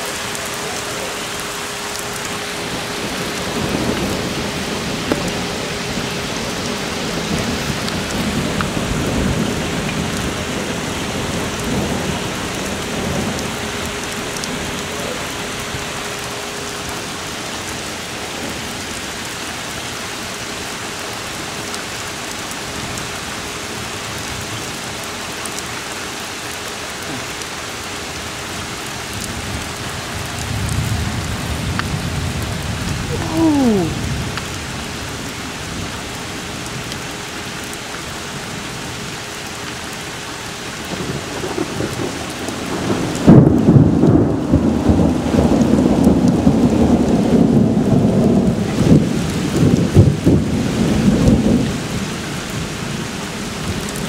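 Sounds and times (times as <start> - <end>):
thunder rumbling: 0.0 - 18.8, 40.9 - 54.0
heavy rain falling: 0.0 - 54.0.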